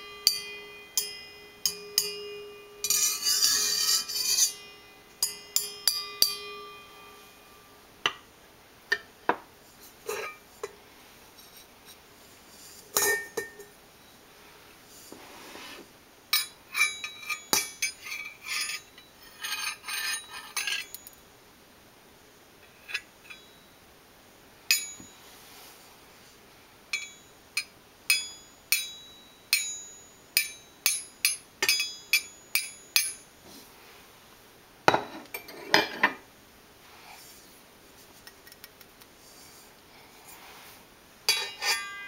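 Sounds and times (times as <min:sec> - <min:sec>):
metallic taps with ring: 0:00.2 - 0:07.0, 0:24.7 - 0:25.2, 0:26.9 - 0:33.2.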